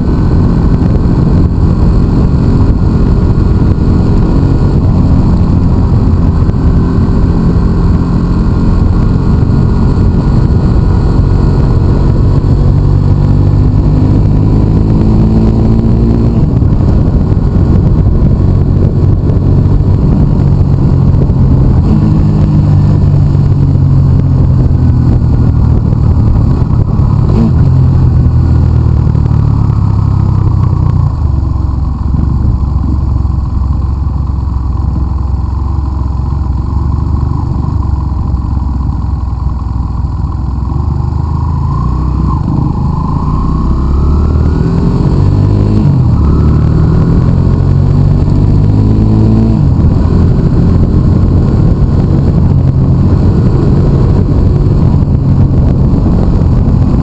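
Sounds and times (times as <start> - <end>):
motorcycle engine droning: 0.0 - 57.0.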